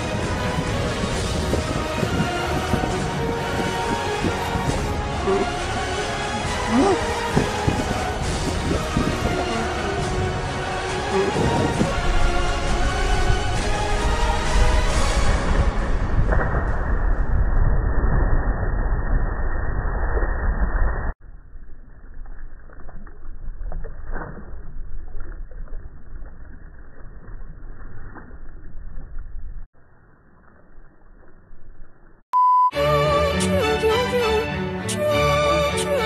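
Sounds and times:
water splashes: 0.0 - 15.8, 21.6 - 32.2
short steady beep: 32.4 - 32.8
music with clear tune: 32.8 - 36.0.

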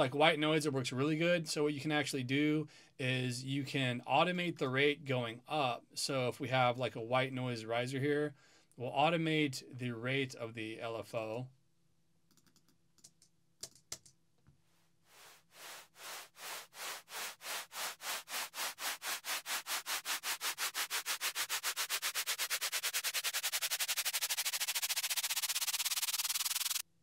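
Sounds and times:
pulsing white noise riser: 15.2 - 26.8.

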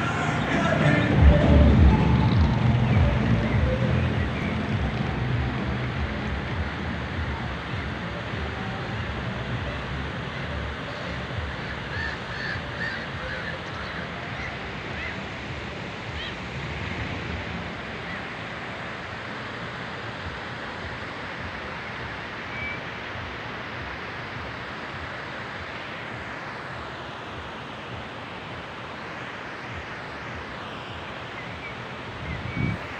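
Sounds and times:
wind rumbling on microphone: 32.0 - 32.9.

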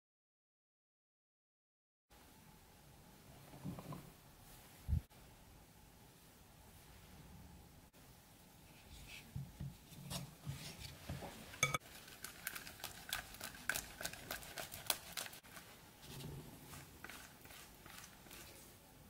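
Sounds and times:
butter grated on metal grater: 11.8 - 15.7, 16.7 - 18.6.

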